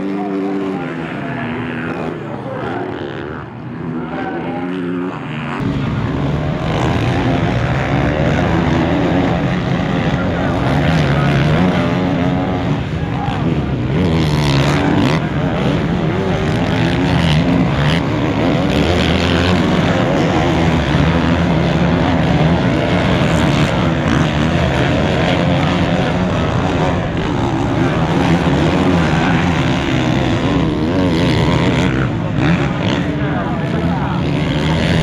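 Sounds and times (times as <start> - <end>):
motocross motorcycle engines revving: 0.0 - 35.0.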